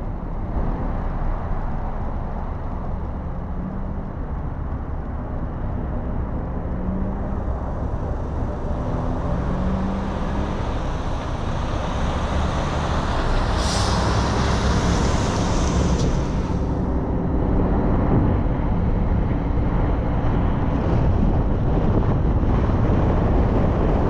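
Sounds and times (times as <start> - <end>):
passing traffic: 0.0 - 24.0
wind and road noise: 0.0 - 24.0
car engine idling: 7.1 - 17.0.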